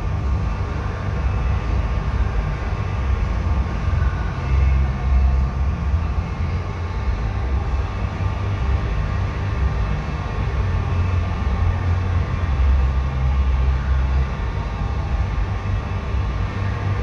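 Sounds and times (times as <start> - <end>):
ventilation fans rumbling: 0.0 - 17.0.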